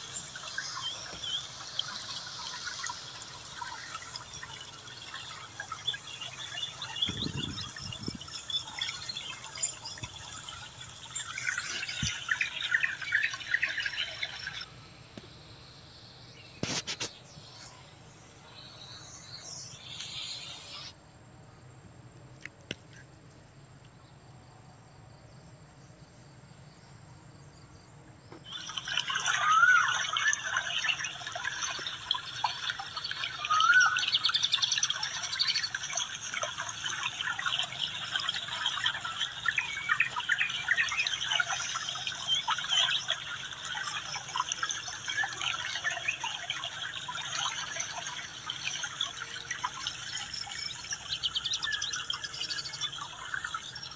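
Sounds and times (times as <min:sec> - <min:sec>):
birds chirping and chattering: 0:00.0 - 0:14.7, 0:28.4 - 0:53.9.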